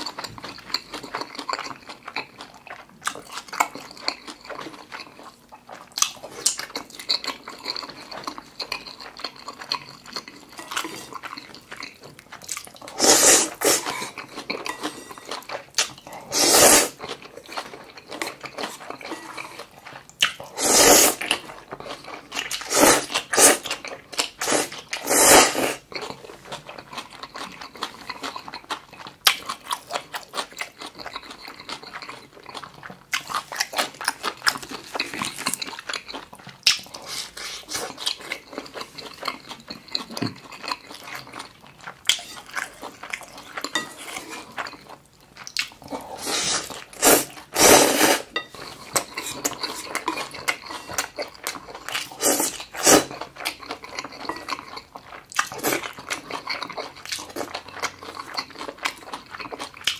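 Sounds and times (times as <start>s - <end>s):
wet chewing: 0.0s - 59.9s
slurping noodles: 12.8s - 14.2s, 16.1s - 17.0s, 20.4s - 21.4s, 22.5s - 25.8s, 45.9s - 48.3s, 52.0s - 53.2s.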